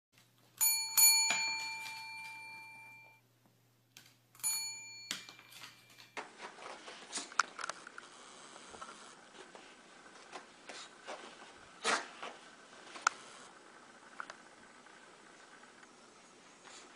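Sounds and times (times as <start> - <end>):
desk service bell dinging: 0.6 - 3.2, 4.4 - 6.2.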